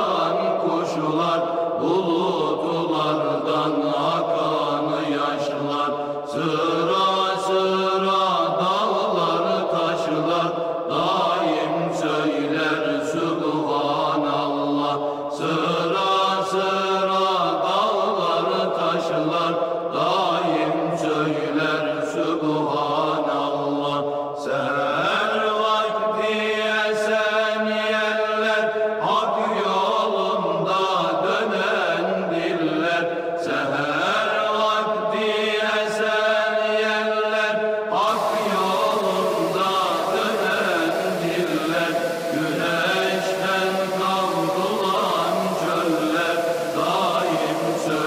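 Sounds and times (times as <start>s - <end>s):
voices chanting unaccompanied: 28.4s - 48.0s.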